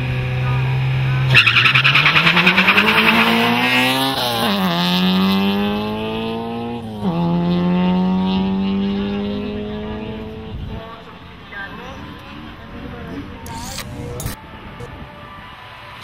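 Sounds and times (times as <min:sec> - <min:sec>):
car engines revving: 0:00.0 - 0:16.0
tyres squealing in wheelspin: 0:01.3 - 0:03.5.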